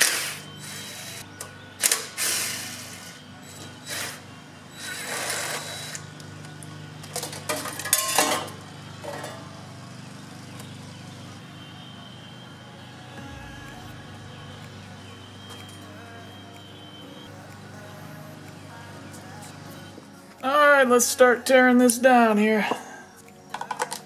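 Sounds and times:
cordless drill whirring: 0:00.0 - 0:06.2.

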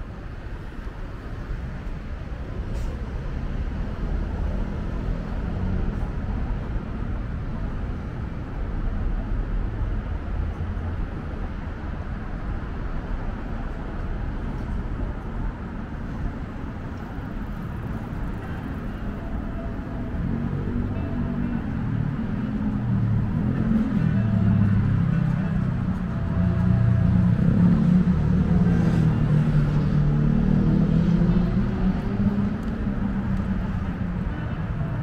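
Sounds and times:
road traffic rumble: 0:00.0 - 0:35.0.

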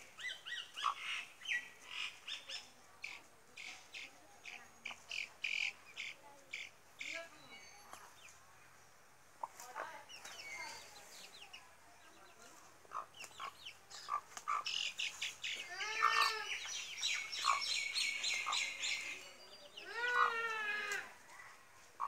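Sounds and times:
chickens chirping: 0:00.0 - 0:03.2, 0:09.4 - 0:20.4.

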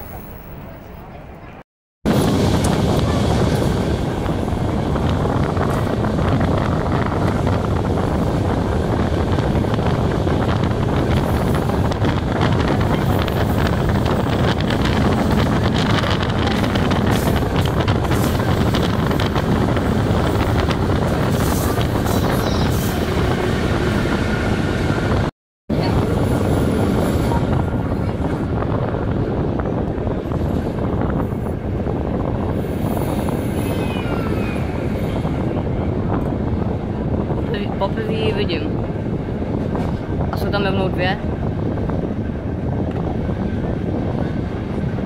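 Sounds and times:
wind buffeting microphone: 0:01.4 - 0:45.0.

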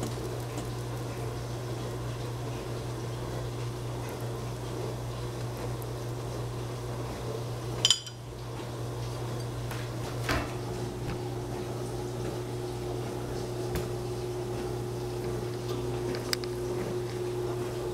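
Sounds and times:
chopsticks clinking on ceramic bowl: 0:07.8 - 0:08.2.

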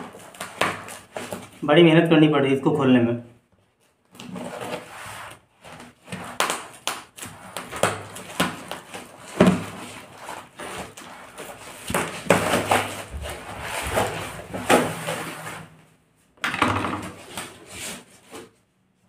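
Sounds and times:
cardboard parcel ripping: 0:00.0 - 0:01.6, 0:04.0 - 0:15.7.

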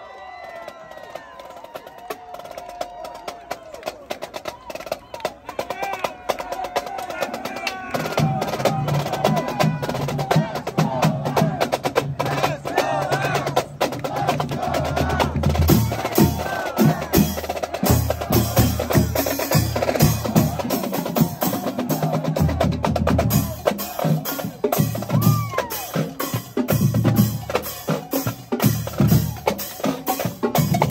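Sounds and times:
bass drum steady beat: 0:10.4 - 0:30.9.

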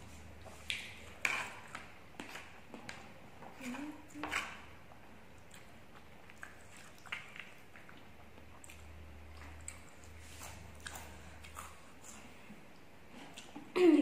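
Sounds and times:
faint chewing: 0:00.1 - 0:13.8.

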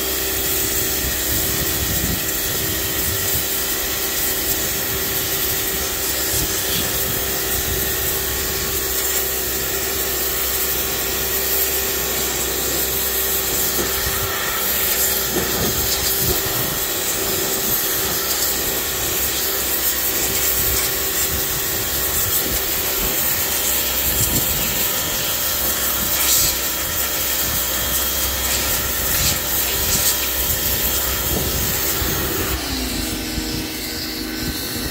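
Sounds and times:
pressure washer running: 0:00.0 - 0:34.9
water jet hissing on wood: 0:00.0 - 0:34.9.

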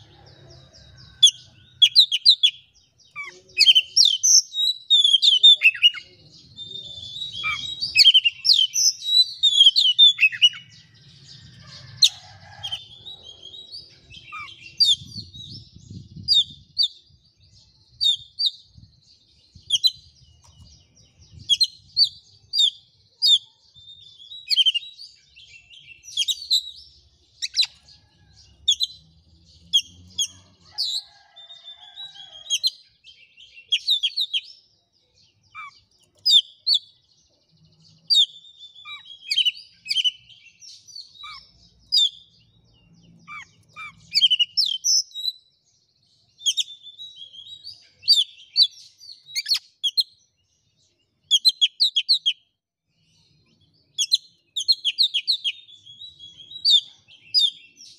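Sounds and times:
bird singing whistled notes: 0:01.0 - 0:10.9, 0:12.5 - 0:27.8, 0:37.8 - 0:45.5, 0:46.4 - 0:50.2, 0:53.8 - 0:57.9.

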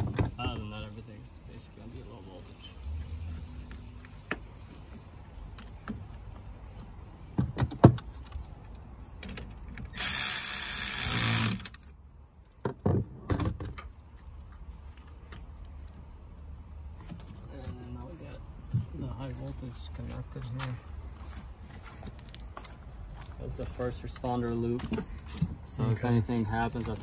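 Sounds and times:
power ratchet running: 0:09.9 - 0:11.8.

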